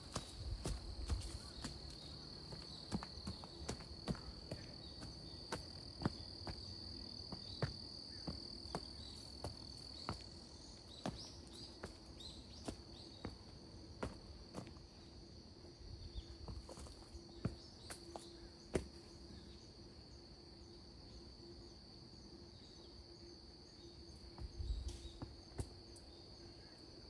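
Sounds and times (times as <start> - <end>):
footsteps of person walking: 0.0 - 14.8, 16.5 - 18.9.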